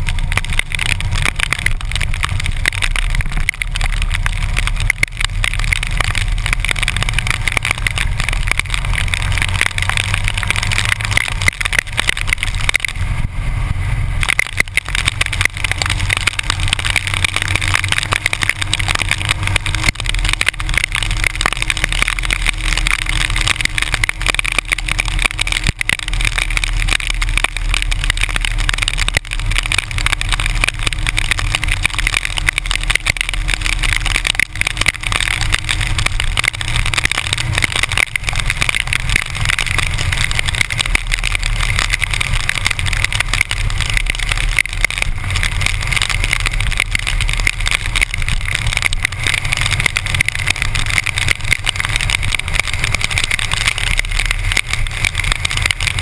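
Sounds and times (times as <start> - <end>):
motorcycle engine rumble: 0.0 - 56.0
rain noise: 0.0 - 56.0.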